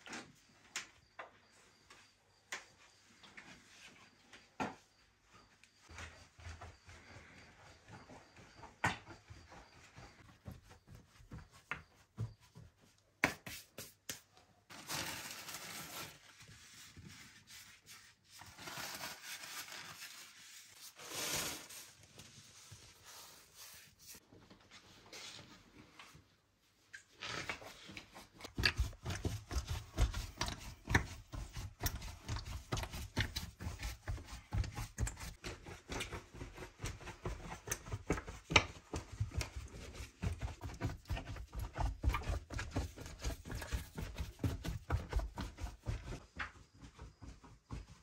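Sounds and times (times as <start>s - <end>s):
dough thumping and slapping: 10.2s - 14.2s, 28.4s - 46.2s.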